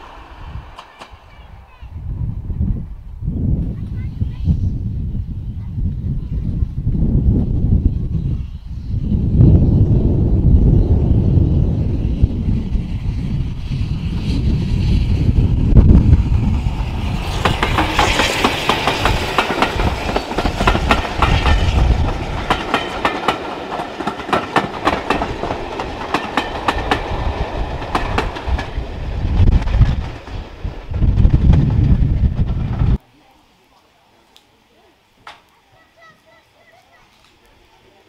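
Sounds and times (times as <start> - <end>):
train wheels clicking over rail joints: 0.0 - 1.5, 16.3 - 33.0
steam train hiss: 0.0 - 2.1, 7.4 - 30.9.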